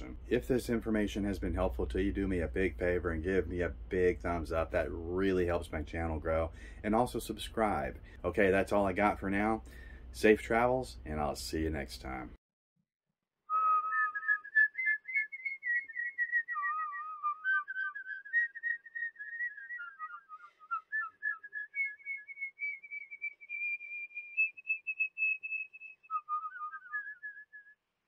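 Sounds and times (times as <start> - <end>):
person whistling a tune: 13.5 - 27.8.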